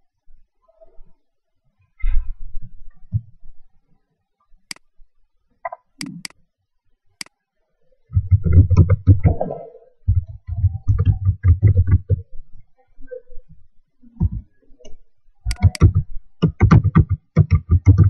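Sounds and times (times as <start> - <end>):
sharp single clicks: 6.0 - 6.4, 15.5 - 15.9
typing on laptop keyboard: 15.5 - 15.9, 16.5 - 18.0.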